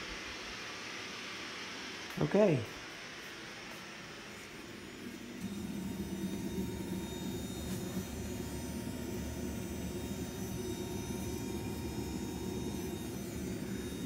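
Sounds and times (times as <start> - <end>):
steam generator low rumble: 5.0 - 14.0.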